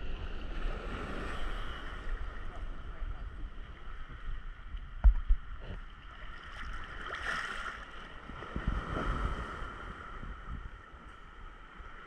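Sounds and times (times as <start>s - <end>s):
sea water lapping and sloshing: 3.5s - 12.0s.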